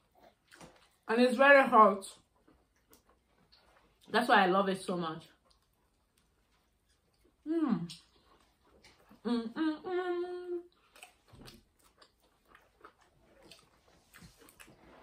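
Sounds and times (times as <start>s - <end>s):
chewing and lip-smacking: 0.0s - 1.1s, 2.2s - 4.2s, 5.2s - 9.2s, 10.7s - 15.0s
woman humming: 9.2s - 10.7s.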